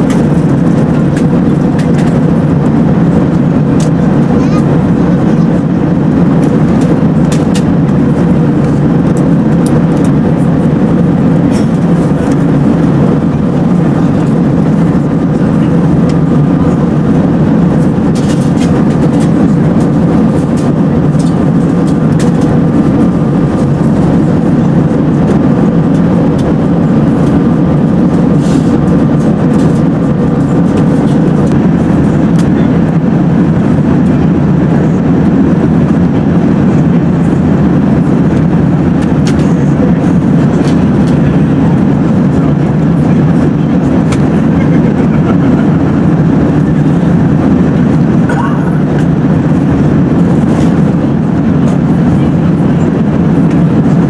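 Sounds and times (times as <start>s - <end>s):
airplane cabin rumble: 0.0s - 54.0s.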